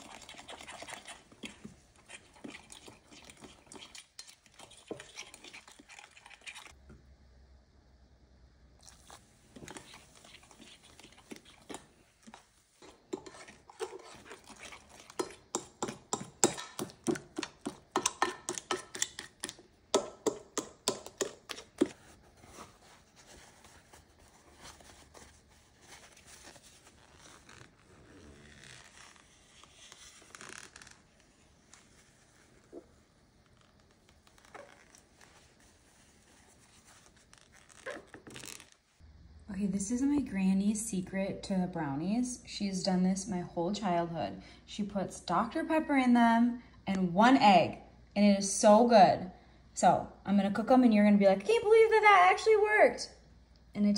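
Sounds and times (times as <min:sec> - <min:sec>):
spatula stirring batter in glass dish: 0:00.0 - 0:06.9, 0:08.8 - 0:26.9.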